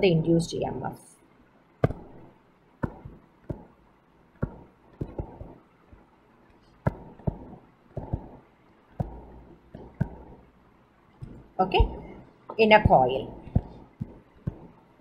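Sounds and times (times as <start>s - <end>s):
stylus tapping on touchscreen: 1.8s - 3.8s, 4.4s - 6.1s, 6.8s - 8.4s, 9.0s - 10.5s, 12.8s - 14.8s.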